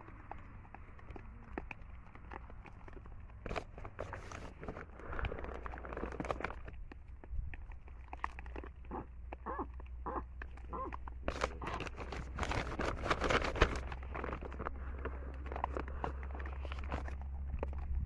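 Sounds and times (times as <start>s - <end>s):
baboons calling: 8.8s - 11.9s
scuffling and rustling: 10.8s - 17.8s.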